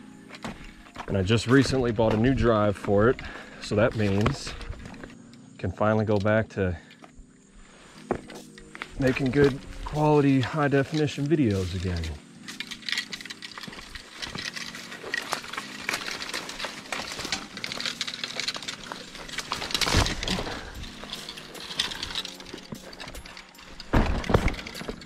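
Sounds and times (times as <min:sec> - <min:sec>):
brush rustling: 0:07.6 - 0:25.0
thuds: 0:23.8 - 0:25.0.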